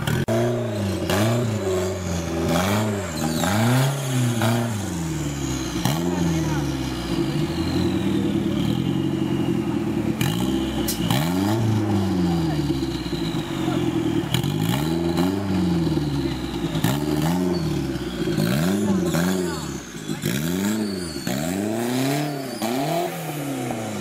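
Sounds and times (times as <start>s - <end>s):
off-road vehicle engine revving: 0.0s - 24.0s.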